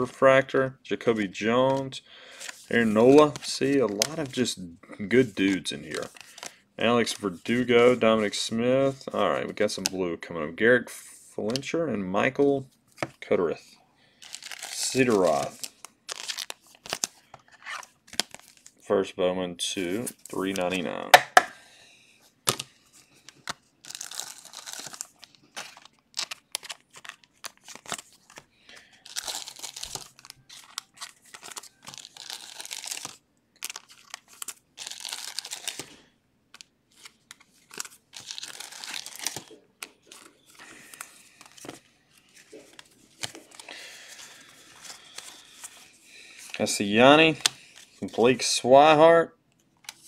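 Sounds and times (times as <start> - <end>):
card wrappers crinkling and tearing: 1.7 - 4.4, 5.1 - 8.3, 14.2 - 18.8, 22.5 - 48.5, 49.7 - 50.0
cards being handled: 1.7 - 4.5, 5.1 - 8.4, 14.2 - 18.8, 22.4 - 48.5, 49.7 - 50.0.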